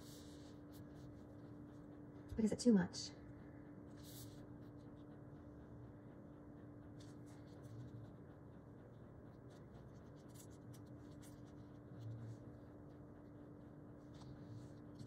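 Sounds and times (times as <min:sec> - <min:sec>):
paper rustling and scratching: 0:09.8 - 0:12.5.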